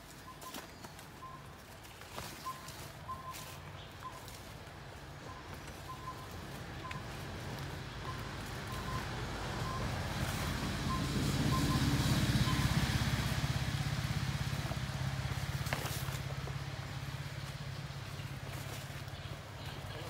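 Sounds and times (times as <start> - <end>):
distant vehicle engine hum: 0.0 - 20.0.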